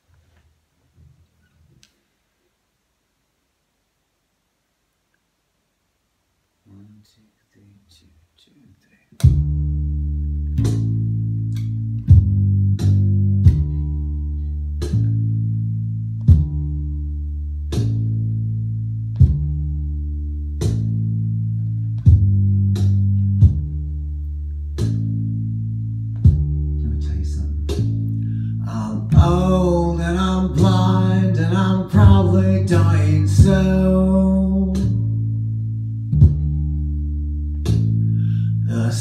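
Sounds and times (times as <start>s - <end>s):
bass guitar plucked notes: 9.2s - 39.0s.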